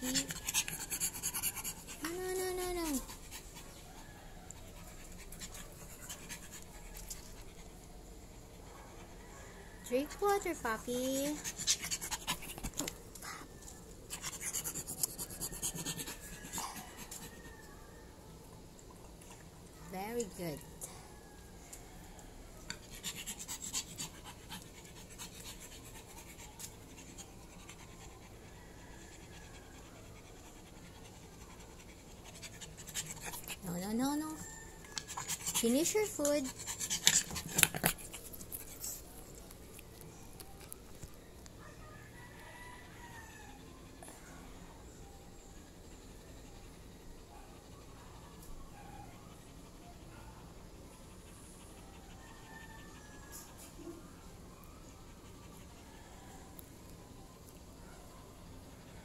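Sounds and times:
dog panting softly: 0:00.0 - 0:17.6, 0:22.7 - 0:39.6, 0:43.5 - 0:56.3.

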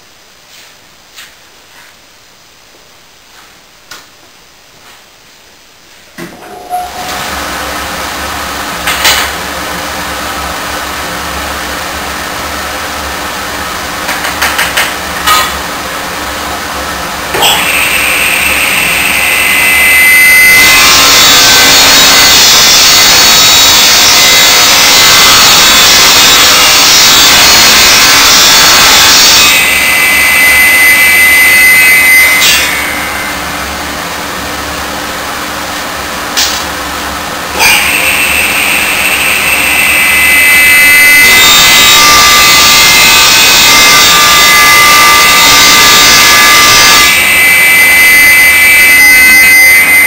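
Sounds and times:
steady machine hum: 0:06.2 - 0:50.0
table saw blade whining: 0:17.3 - 0:33.8, 0:37.5 - 0:50.0.

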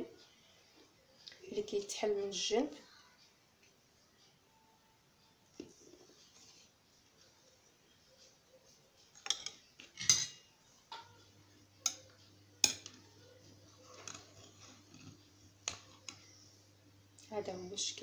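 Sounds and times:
low steady hum: 0:06.8 - 0:18.0
kitchen utensils clattering: 0:09.2 - 0:11.2.

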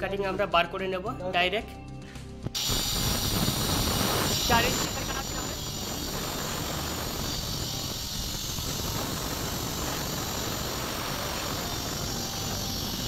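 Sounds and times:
stone cutter grinding: 0:02.6 - 0:13.0.

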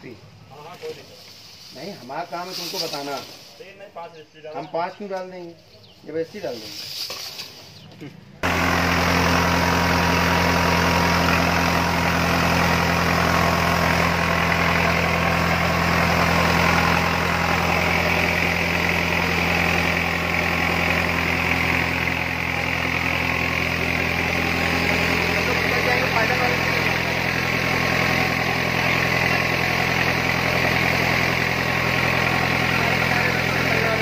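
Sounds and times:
diesel air compressor running: 0:08.4 - 0:34.0.

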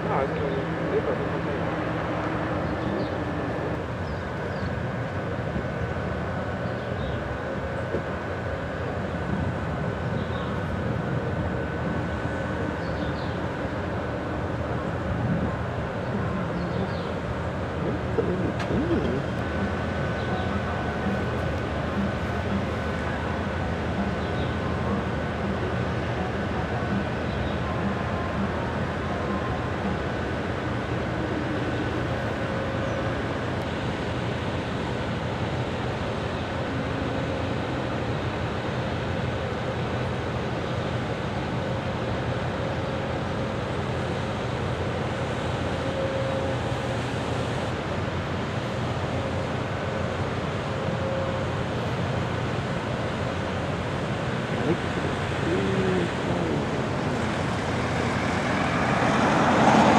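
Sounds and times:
ship engines rumbling: 0:00.0 - 0:59.9
wind and water rushing: 0:00.0 - 0:59.9
rushing noise: 0:53.4 - 0:59.9.

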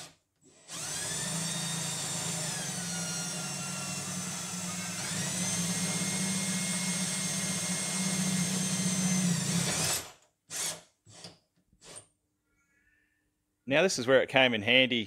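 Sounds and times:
cordless drill drilling metal: 0:00.0 - 0:12.1.

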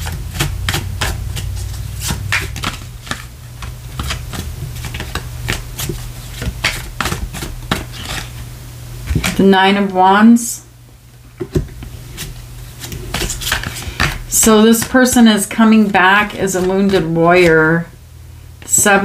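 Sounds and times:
cards being shuffled: 0:00.0 - 0:09.5, 0:11.5 - 0:17.5
steady low hum: 0:00.0 - 0:19.0.

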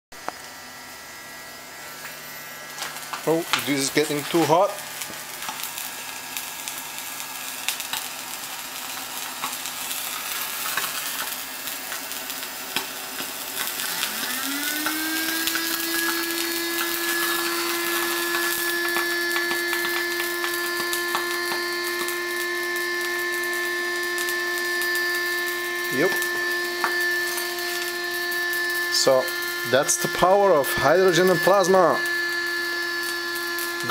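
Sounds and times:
electric arc crackling and sizzling: 0:00.2 - 0:33.9
hum rising in pitch: 0:13.7 - 0:33.9.

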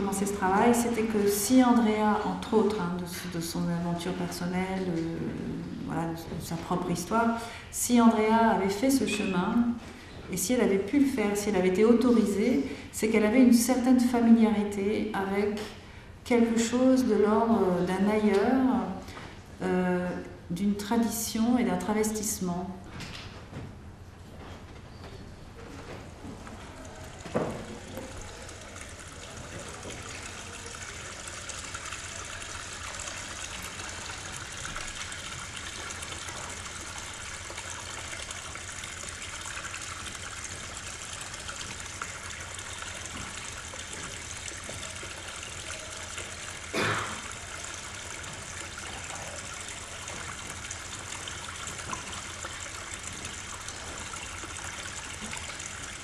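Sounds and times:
water trickling and rushing: 0:26.0 - 0:56.0.

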